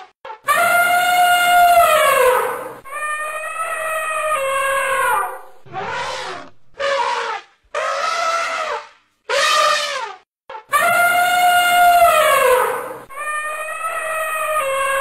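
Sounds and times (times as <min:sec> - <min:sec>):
elephants trumpeting: 0:00.6 - 0:10.2.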